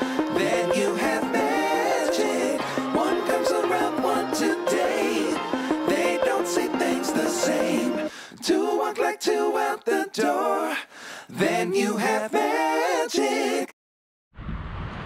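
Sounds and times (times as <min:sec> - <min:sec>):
background music with singing: 0:00.0 - 0:13.7.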